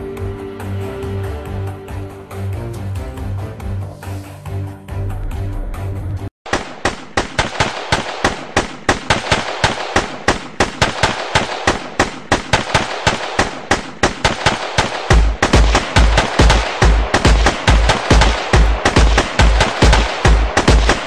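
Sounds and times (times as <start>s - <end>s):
airsoft guns firing: 6.5s - 21.0s.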